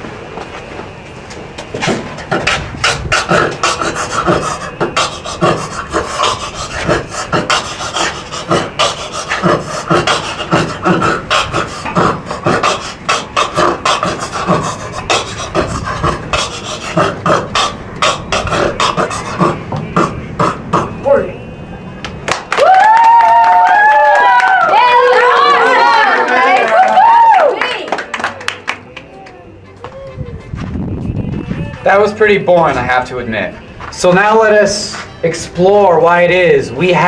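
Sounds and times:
person beatboxing: 1.8s - 21.0s.

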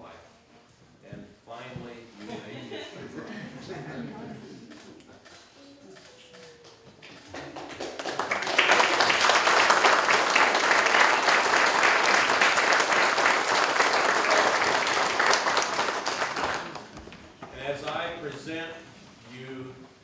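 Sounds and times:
crowd applauding: 6.2s - 17.1s.

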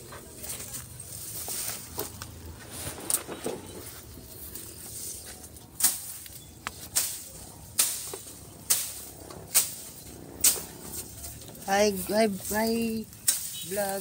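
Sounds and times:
leaves rustling: 0.0s - 14.0s.

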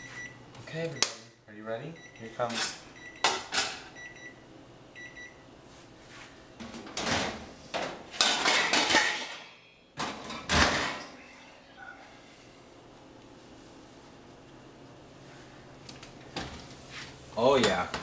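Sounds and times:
metal pan clattering on oven rack: 6.9s - 11.0s.

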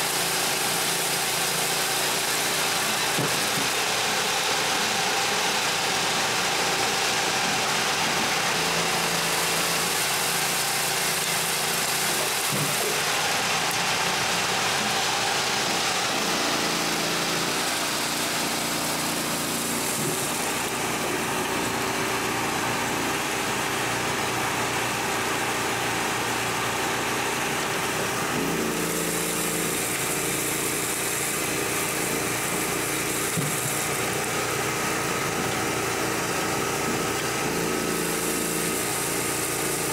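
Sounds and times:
dust collector blower running: 0.0s - 39.9s
firewood processor running: 0.0s - 39.9s.

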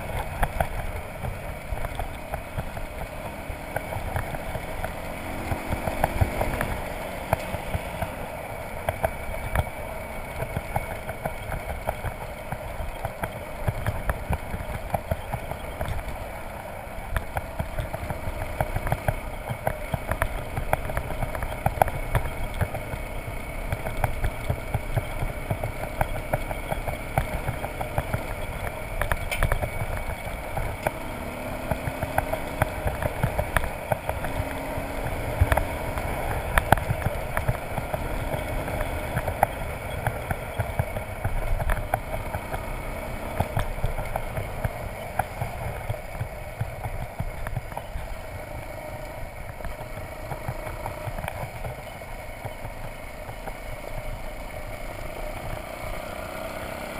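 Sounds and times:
motorcycle engine running: 0.0s - 56.9s
small clicks and knocks: 17.0s - 31.0s, 43.2s - 54.5s.

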